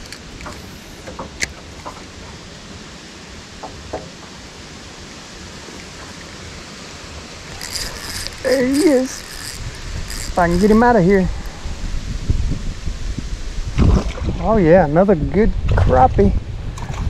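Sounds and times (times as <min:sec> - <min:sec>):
wind hiss on microphone: 0:00.0 - 0:17.0
spinning reel clicks and taps: 0:07.6 - 0:10.8.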